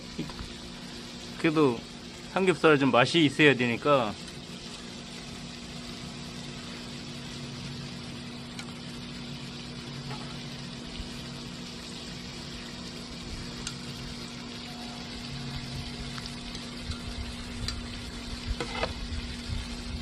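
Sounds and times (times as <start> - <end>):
pork sizzling on a griddle: 0.0 - 20.0
steady low hum: 0.0 - 20.0
tongs clicking against pan: 16.2 - 17.9.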